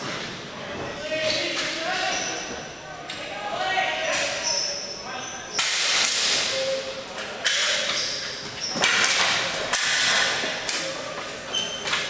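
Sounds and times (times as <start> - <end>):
hockey sticks and ball clacking: 5.5 - 12.0.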